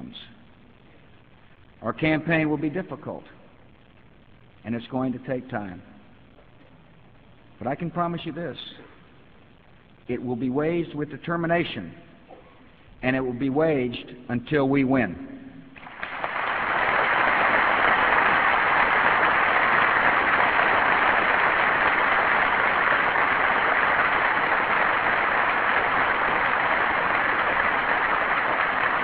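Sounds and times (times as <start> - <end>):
audience applauding: 15.8 - 29.0.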